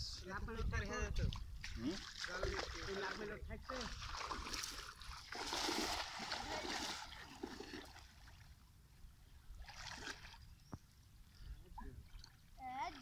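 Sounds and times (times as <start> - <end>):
water splashing in pond: 1.6 - 8.6, 9.5 - 10.6.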